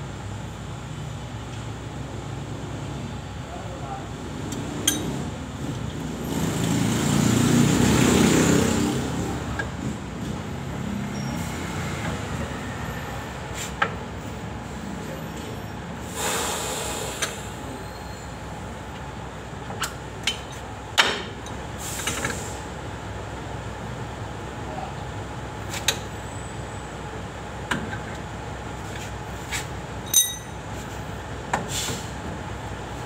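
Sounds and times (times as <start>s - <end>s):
steady background noise: 0.0s - 33.0s
metal tools clinking: 4.8s - 5.2s, 30.0s - 30.6s.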